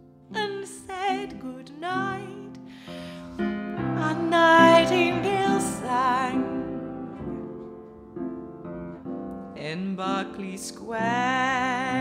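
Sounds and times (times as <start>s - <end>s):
piano chords: 0.0s - 12.0s
woman singing ballad: 0.3s - 2.7s, 3.9s - 7.4s.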